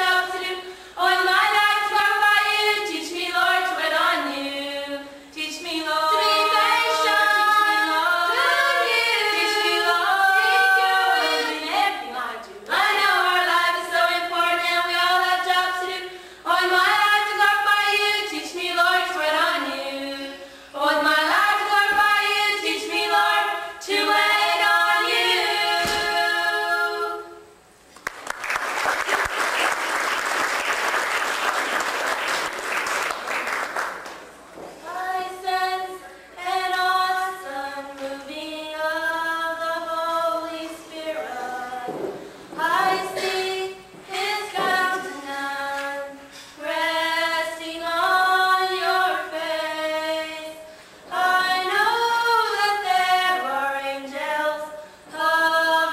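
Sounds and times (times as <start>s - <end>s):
girls singing a cappella: 0.0s - 27.7s, 34.7s - 55.9s
applause: 28.0s - 34.3s.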